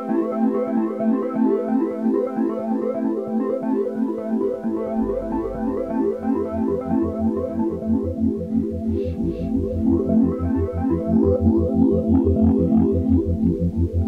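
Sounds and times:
electronic keyboard music: 0:00.0 - 0:14.0
low pulsing bass: 0:04.6 - 0:14.0.

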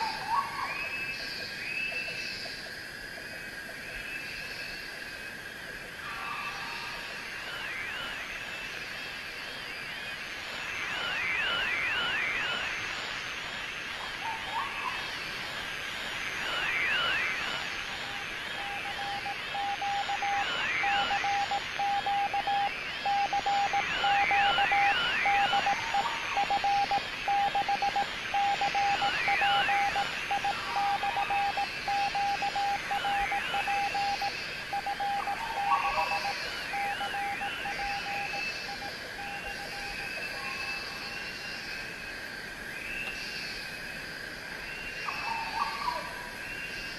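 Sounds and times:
steady hiss: 0:04.0 - 0:45.1
morse-like beeping tone: 0:09.9 - 0:13.9, 0:16.0 - 0:40.0.

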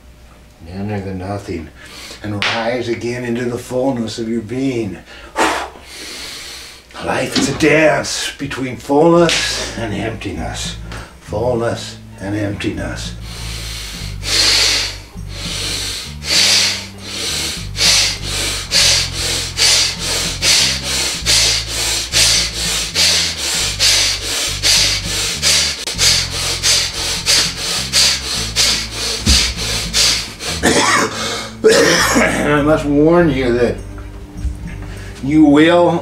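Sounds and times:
man breathing forcefully: 0:01.8 - 0:02.2, 0:05.1 - 0:06.9, 0:13.1 - 0:31.6, 0:34.8 - 0:35.2
low music drone: 0:07.4 - 0:36.0.

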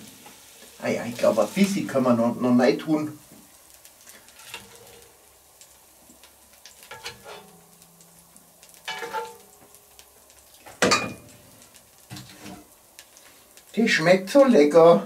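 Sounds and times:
oil and vegetables sizzling: 0:00.0 - 0:15.0
metal spoon scraping a pot: 0:04.3 - 0:05.0, 0:06.9 - 0:07.5.

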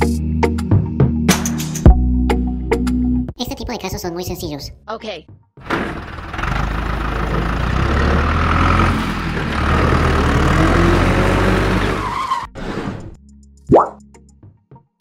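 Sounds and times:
tractor engine rumbling: 0:05.6 - 0:13.1.

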